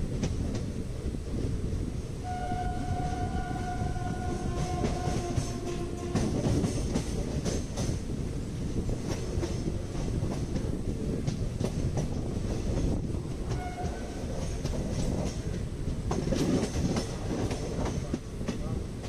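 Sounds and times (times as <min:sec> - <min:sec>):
train wheels rumbling: 0:00.0 - 0:19.0
wheels clattering over rail joints: 0:08.8 - 0:18.8.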